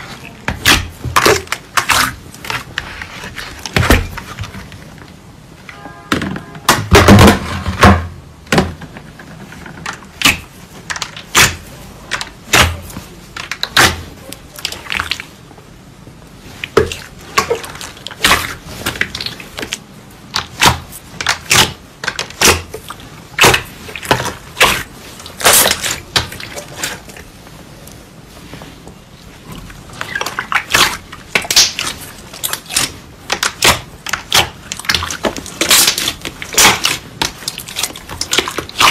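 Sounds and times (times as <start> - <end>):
slime squelching and popping: 0.0 - 4.5, 10.0 - 15.4, 16.5 - 27.3, 29.4 - 38.9.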